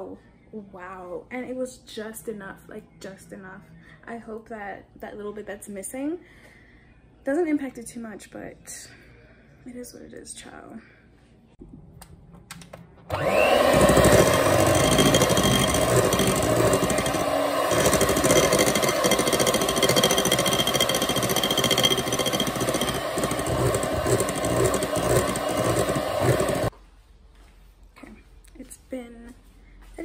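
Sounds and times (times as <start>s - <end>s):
electric hand mixer motor: 13.1s - 26.7s.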